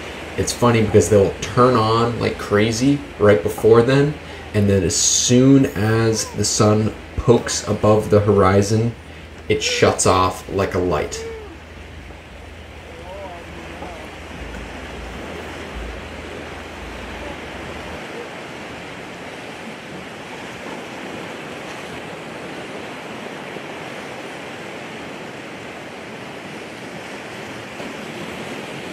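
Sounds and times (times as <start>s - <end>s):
surf washing onto shore: 0.0s - 28.9s
low rumble: 10.3s - 18.0s.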